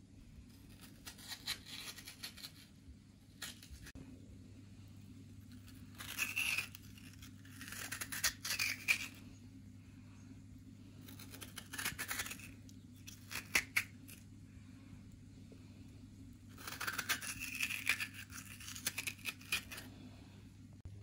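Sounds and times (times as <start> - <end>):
metal spoon scraping potato: 0.5 - 3.9, 5.4 - 9.3, 11.0 - 14.3, 16.4 - 20.0
steady low hum: 2.2 - 21.0.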